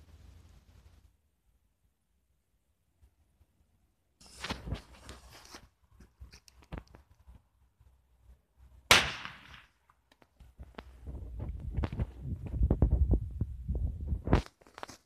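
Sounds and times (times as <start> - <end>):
firecracker bang: 8.9 - 9.8.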